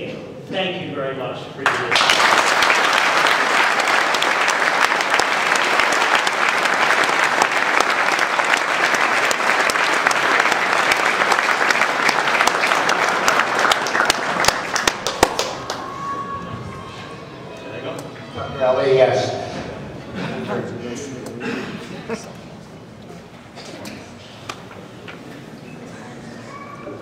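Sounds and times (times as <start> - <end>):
audience applauding: 1.6 - 16.4.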